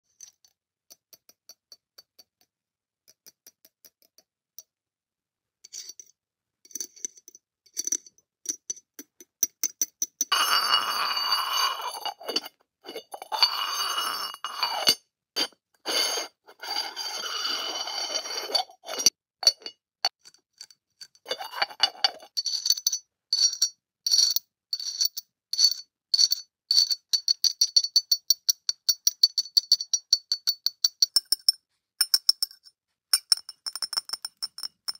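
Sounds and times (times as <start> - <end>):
ceramic lid scraping bowl rim: 10.3 - 19.7, 21.3 - 22.3.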